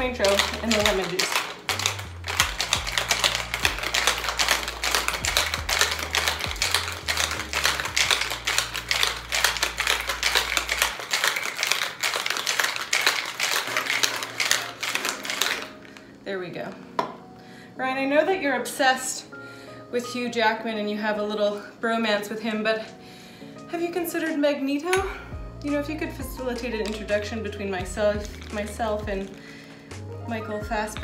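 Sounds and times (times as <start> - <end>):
ice rattling in cocktail shaker: 0.0 - 16.0, 25.6 - 31.0.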